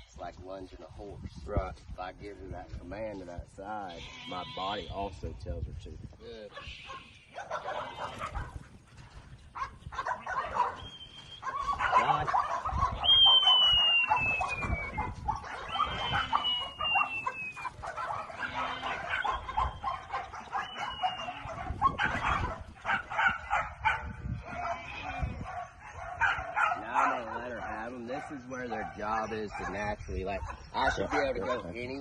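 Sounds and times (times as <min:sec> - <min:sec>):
farmyard animal calls: 0:03.2 - 0:05.2, 0:06.2 - 0:32.0
falling whistled tones: 0:10.8 - 0:11.5, 0:13.0 - 0:15.0, 0:15.7 - 0:17.7.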